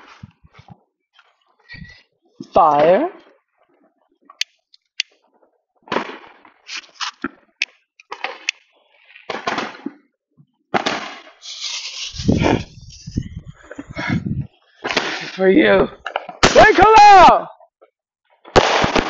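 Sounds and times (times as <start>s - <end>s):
firework pops: 5.9s - 10.1s, 10.7s - 12.8s, 14.8s - 15.4s, 18.5s - 19.0s
firework crackling: 8.1s - 10.0s, 10.7s - 13.9s, 14.5s - 17.0s, 18.5s - 19.0s
firework hiss: 10.8s - 13.8s, 14.8s - 15.5s
deep rumble: 12.1s - 14.5s.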